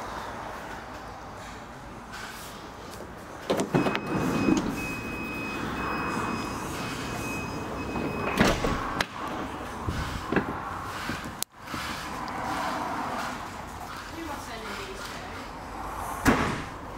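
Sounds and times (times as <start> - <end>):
sliding door clicks: 3.4 - 5.0, 7.9 - 9.6
sliding door clunk: 3.4 - 12.0
sliding door running on rail: 3.5 - 14.4.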